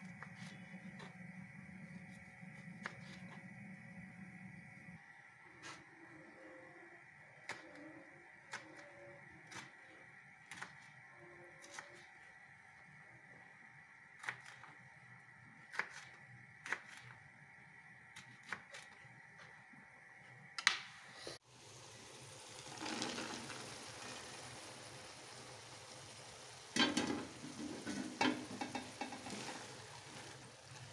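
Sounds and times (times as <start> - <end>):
wooden spoon stirring in metal pot: 26.8 - 30.2.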